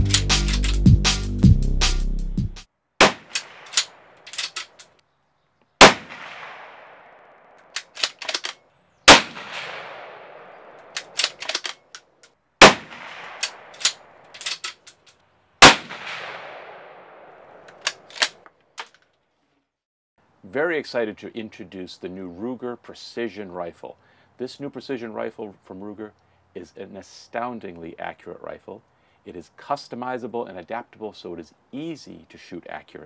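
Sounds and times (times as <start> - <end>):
rifle shots echoing: 3.0 - 4.1, 5.8 - 7.6, 9.1 - 11.2, 12.6 - 14.0, 15.6 - 17.7
metallic clicks of rifle bolt: 3.3 - 4.9, 7.6 - 8.6, 10.8 - 12.2, 13.3 - 15.2, 17.6 - 19.1.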